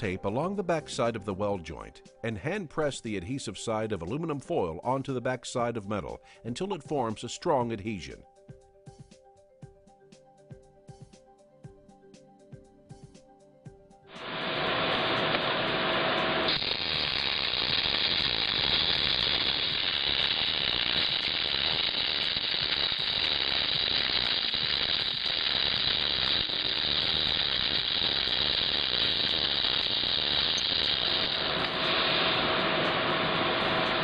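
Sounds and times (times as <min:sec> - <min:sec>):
arc welding crackling: 0:14.1 - 0:34.0.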